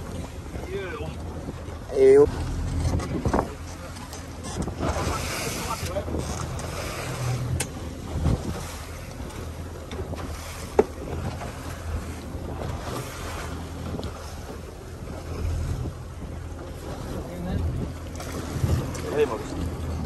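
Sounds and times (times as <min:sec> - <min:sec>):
boat engine running: 0:00.0 - 0:20.0
sea washing along hull: 0:00.0 - 0:20.0
wind on microphone: 0:00.0 - 0:20.0.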